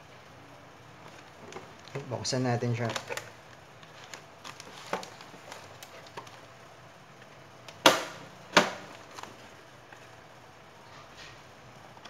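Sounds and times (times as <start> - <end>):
loud sharp plastic snaps: 7.6 - 9.4.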